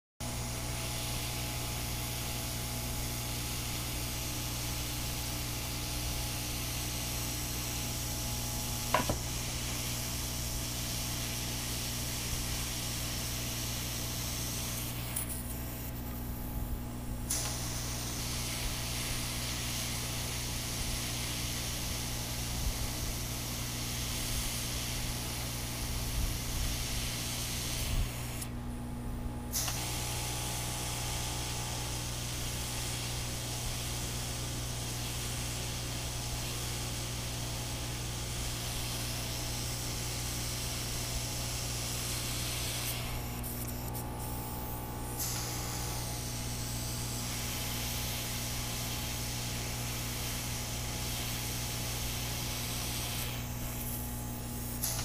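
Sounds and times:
hot air hissing: 0.2s - 28.7s, 29.5s - 55.0s
steady low hum: 0.2s - 55.0s
sharp click: 17.3s - 17.6s, 29.6s - 29.9s, 54.8s - 55.0s.

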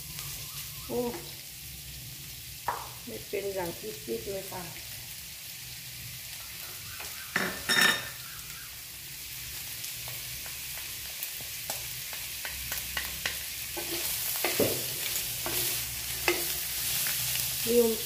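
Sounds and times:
fish sizzling in oil: 0.0s - 18.0s
wooden spatula scraping a wok: 13.2s - 18.0s.

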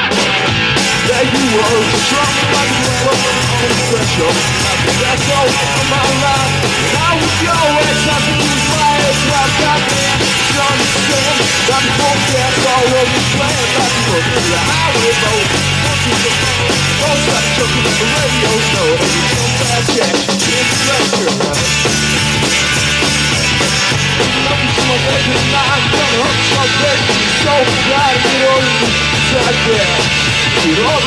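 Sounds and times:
bass guitar: 0.0s - 31.0s
drums and cymbals: 0.0s - 31.0s
electric guitar: 0.0s - 31.0s.

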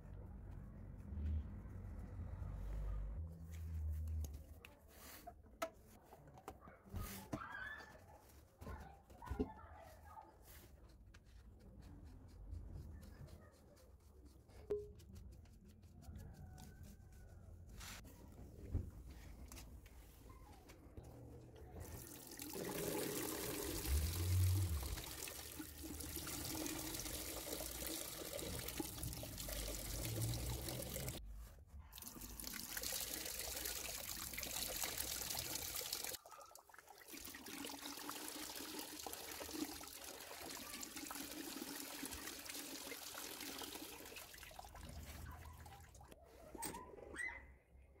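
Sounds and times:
water splashing into a washbasin: 21.7s - 31.2s, 32.0s - 46.2s.

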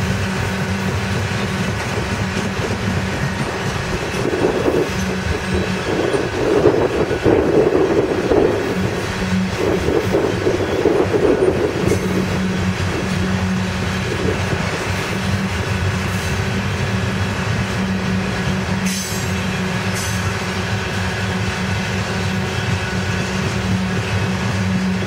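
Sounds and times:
steel wheels rumbling on rail: 0.0s - 25.0s.

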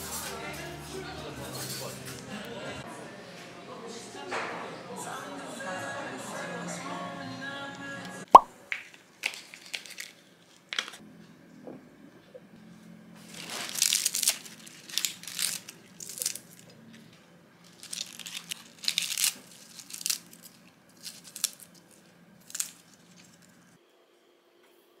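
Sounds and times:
lettuce leaves tearing: 9.2s - 11.0s, 13.2s - 16.8s, 17.7s - 23.6s.

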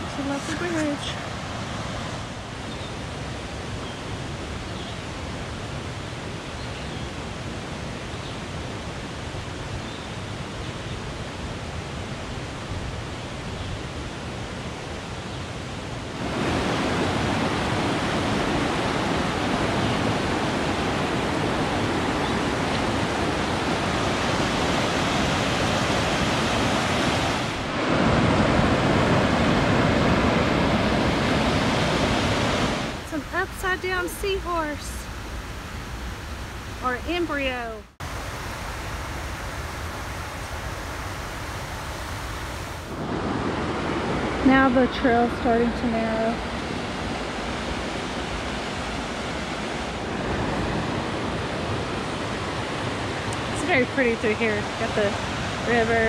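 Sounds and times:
creek rushing over boulders: 0.0s - 3.7s, 15.9s - 56.0s.

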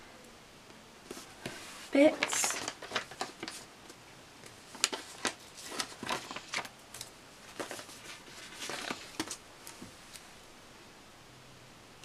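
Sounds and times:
paper sticker sheets crinkling: 1.1s - 10.2s.

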